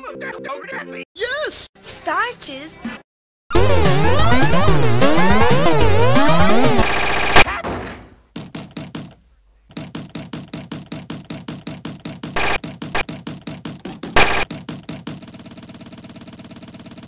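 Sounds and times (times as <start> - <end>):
loud noise bursts: 3.5 - 7.4, 12.4 - 12.6, 14.2 - 14.5
stuttering knock sample loop: 3.5 - 7.4, 12.2 - 14.9.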